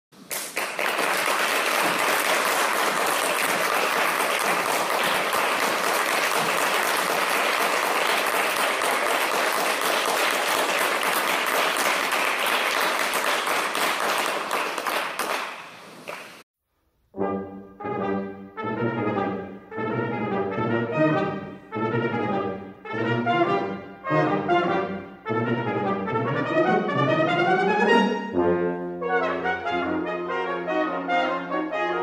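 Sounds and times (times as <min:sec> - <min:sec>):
audience applauding: 0:00.2 - 0:16.4.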